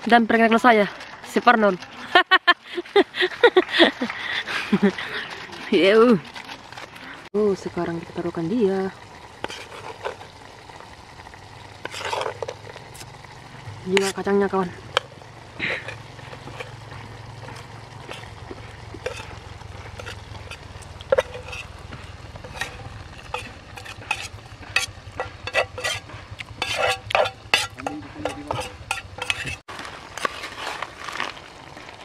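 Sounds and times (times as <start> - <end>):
metal spoon scraping cookware: 11.8 - 12.7, 15.7 - 16.8, 19.0 - 21.8, 22.4 - 29.6.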